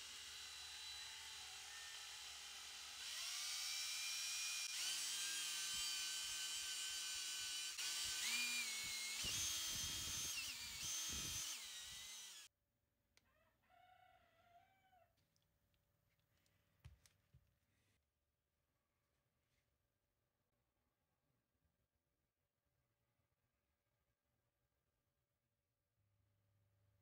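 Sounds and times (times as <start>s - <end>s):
power drill motor whine: 0.0s - 12.5s.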